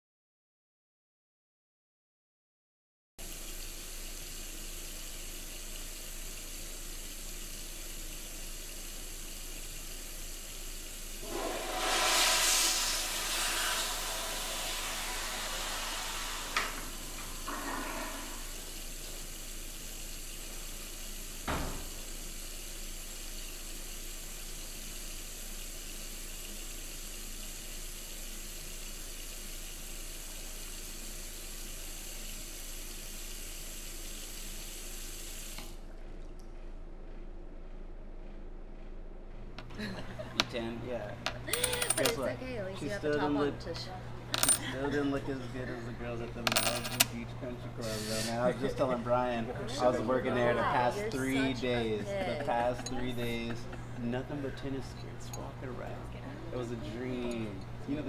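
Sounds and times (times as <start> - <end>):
toilet flushing: 3.2 - 35.9, 42.8 - 55.7
steady hiss: 3.5 - 28.5, 45.2 - 49.2
thump: 21.5 - 21.9.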